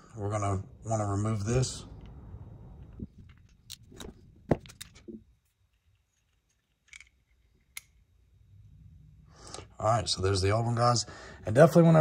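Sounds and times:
small metal parts clicking: 0:03.2 - 0:08.0.

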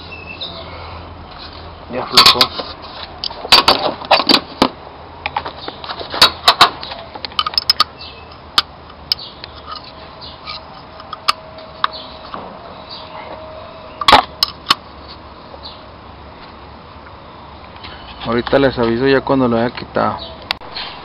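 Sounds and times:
metal wrenches clinking: 0:02.1 - 0:02.7, 0:07.3 - 0:08.4.

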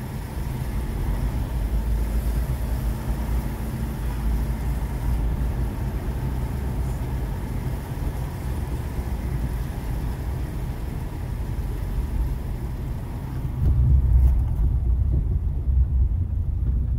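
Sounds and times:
rain hiss: 0:00.0 - 0:13.6
engine and road rumble: 0:00.0 - 0:16.9.

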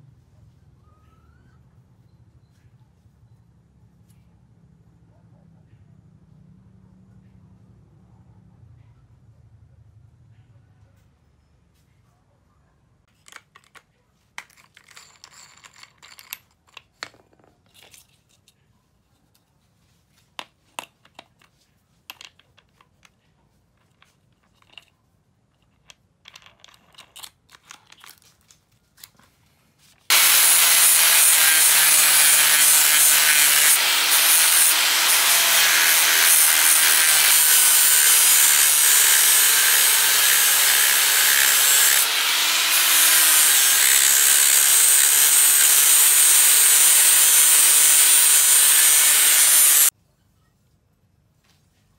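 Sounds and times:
clicks and rattles of handling: 0:13.1 - 0:30.1
angle grinder grinding steel: 0:30.1 - 0:49.9.

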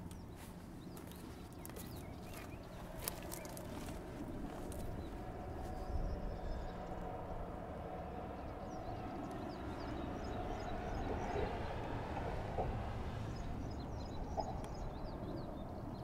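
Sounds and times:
small birds chirping faintly: 0:00.0 - 0:16.0.

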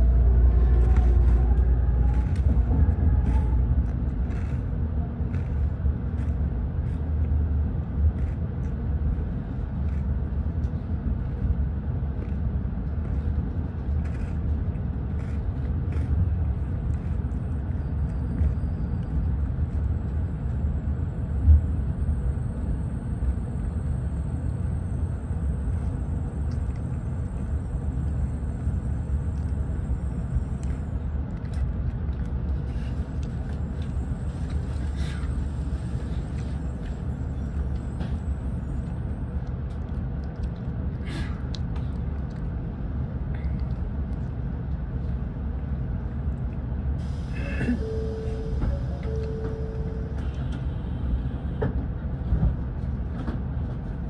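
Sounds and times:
train rumbling: 0:00.0 - 0:54.0
faint high whine: 0:47.0 - 0:51.2.

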